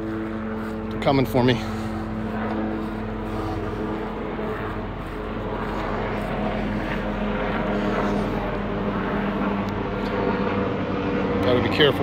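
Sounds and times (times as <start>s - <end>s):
helicopter rotor drone: 0.0s - 12.0s.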